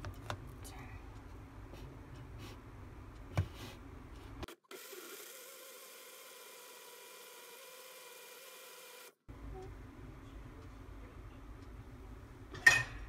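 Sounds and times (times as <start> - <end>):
electric blender whine: 4.7 - 9.2.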